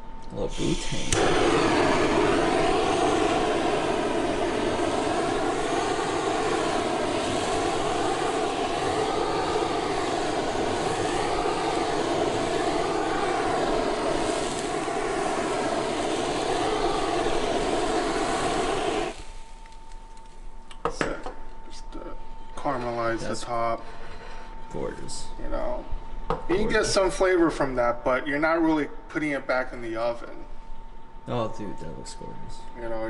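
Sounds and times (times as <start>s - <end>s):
blowtorch flame roaring: 0.4s - 20.2s.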